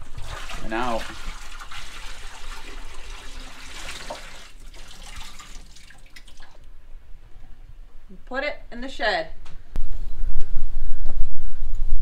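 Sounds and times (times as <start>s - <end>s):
water pouring into metal sink: 0.0s - 6.6s.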